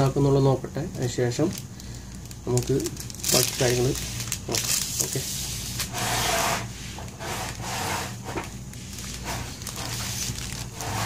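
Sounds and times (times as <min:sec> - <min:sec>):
laptop rubbing and scraping: 0:05.0 - 0:11.0.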